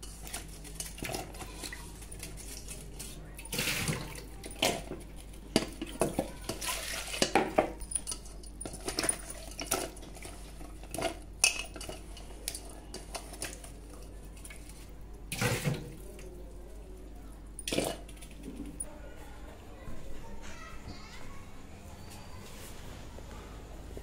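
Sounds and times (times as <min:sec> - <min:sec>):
steel bowl clinking and knocking: 0:03.6 - 0:13.6.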